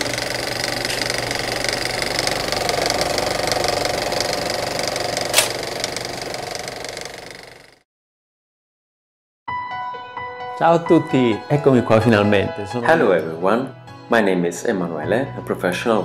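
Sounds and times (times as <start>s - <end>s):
small machine rattling: 0.0s - 7.8s
sharp click: 5.3s - 5.6s.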